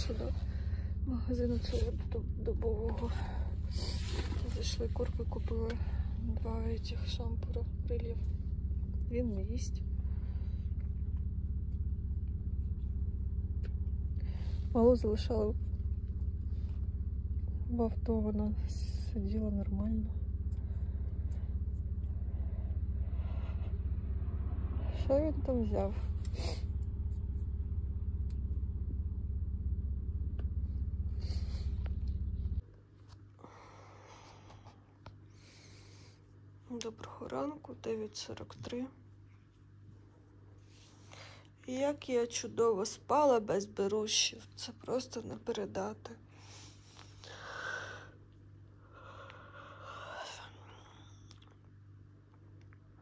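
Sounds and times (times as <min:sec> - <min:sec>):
car engine rumble inside cabin: 0:00.0 - 0:32.7
steady low hum: 0:00.0 - 0:53.0.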